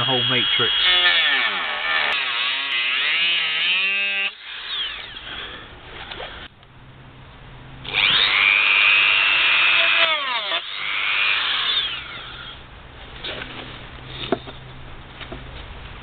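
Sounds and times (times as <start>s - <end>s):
rotary tool cutting screw: 0.0s - 6.5s, 7.9s - 12.6s.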